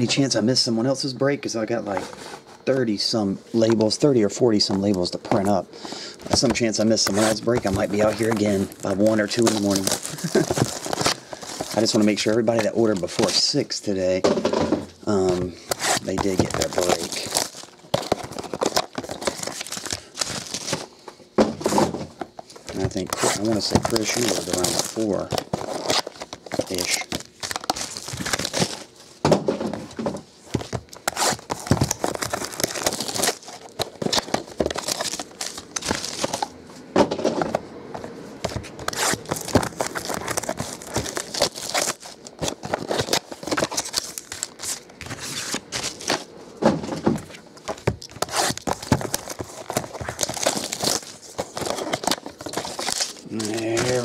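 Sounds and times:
packaging tearing and crinkling: 6.3s - 13.5s, 15.1s - 20.8s, 22.5s - 29.0s, 30.5s - 36.5s, 38.5s - 46.3s, 47.6s - 54.0s.

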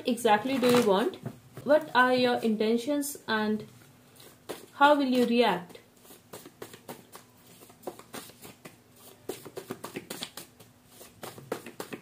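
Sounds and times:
cards being shuffled: 6.0s - 12.0s.

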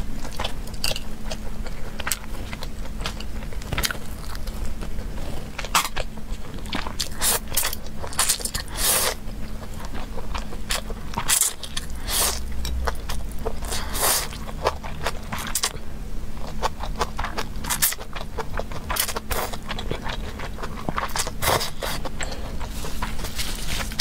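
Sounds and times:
noodles being slurped and chewed: 0.3s - 15.8s, 16.4s - 24.0s.

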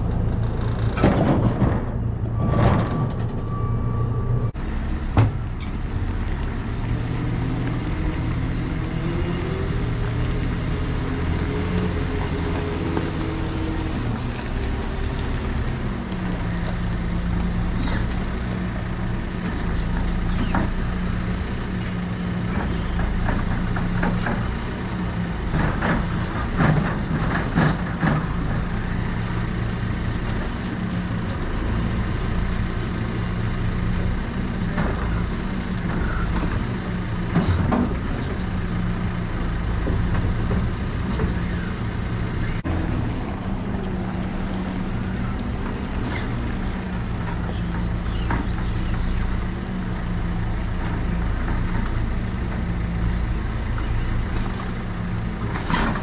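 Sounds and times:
diesel engine running: 0.0s - 56.0s
metal clanks and rattles: 0.8s - 3.5s.

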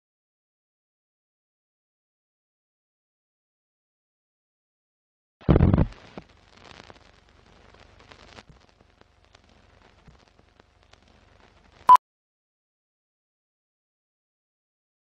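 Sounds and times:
faint crackle with pops: 5.4s - 12.0s.

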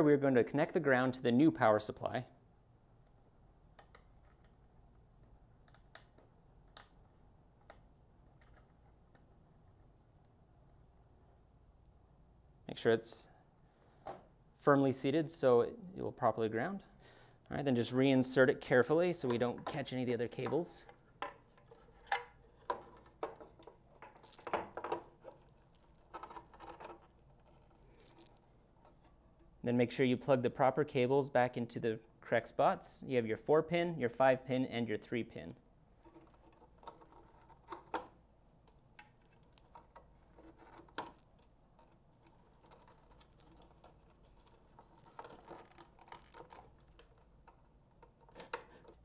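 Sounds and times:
metal and plastic scraping: 21.3s - 29.2s, 36.0s - 38.1s, 39.0s - 49.0s.

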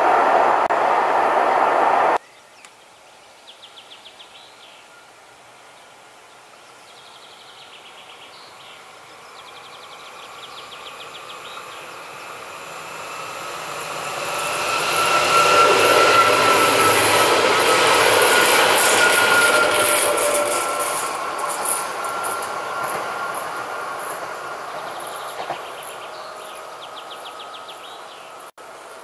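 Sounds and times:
electric train passing: 0.0s - 2.2s, 8.5s - 29.0s
birds singing: 22.0s - 28.4s.

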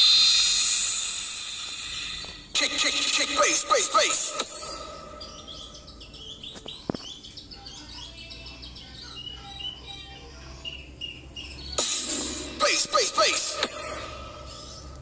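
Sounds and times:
loud music: 2.5s - 5.9s, 11.8s - 14.8s
bird chirps and tweets: 4.8s - 11.8s.

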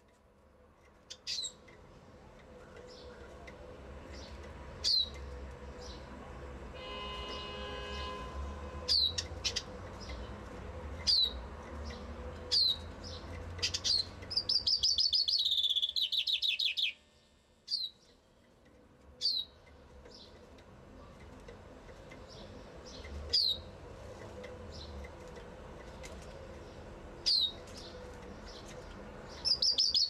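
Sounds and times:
bird song trill: 1.1s - 1.7s, 4.1s - 6.1s, 8.9s - 10.4s, 11.0s - 17.1s, 17.7s - 18.3s, 19.2s - 20.4s, 22.1s - 23.8s, 25.9s - 30.0s.

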